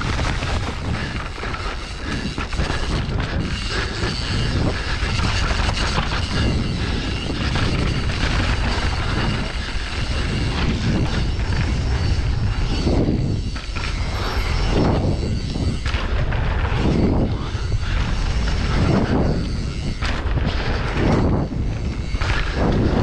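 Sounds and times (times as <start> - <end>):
wind rushing over microphone: 0.0 - 23.0.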